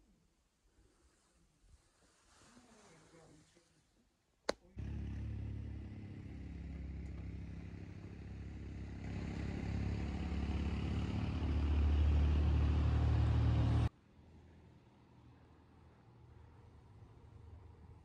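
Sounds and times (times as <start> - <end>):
vehicle engine droning: 4.8 - 13.9.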